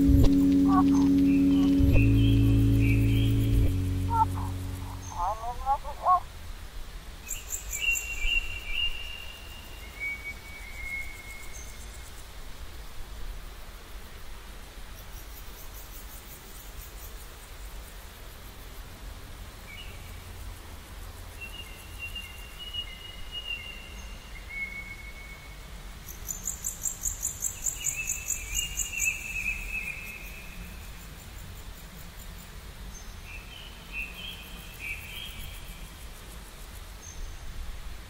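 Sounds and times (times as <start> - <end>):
low steady rumble: 0.0 - 6.2.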